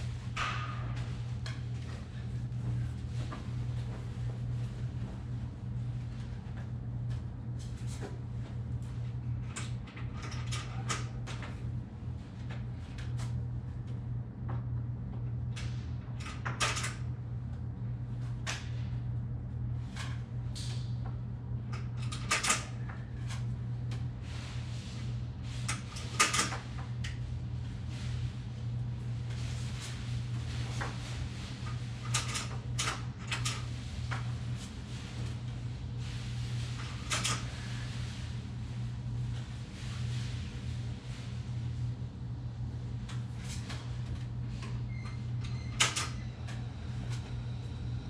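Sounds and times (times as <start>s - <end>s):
steady low hum: 0.0s - 48.0s
plastic blinds clicking and rattling: 25.5s - 27.2s, 30.4s - 35.3s, 36.5s - 38.0s.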